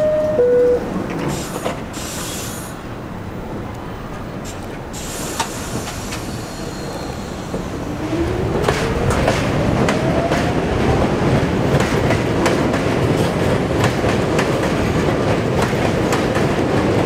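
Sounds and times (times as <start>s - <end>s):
train hissing: 1.2s - 3.0s, 4.4s - 8.2s.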